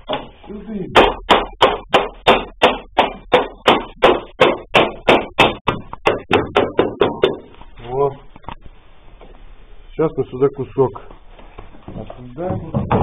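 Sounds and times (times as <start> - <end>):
rapid knocking on wood by hand: 0.0 - 7.5, 12.4 - 13.0.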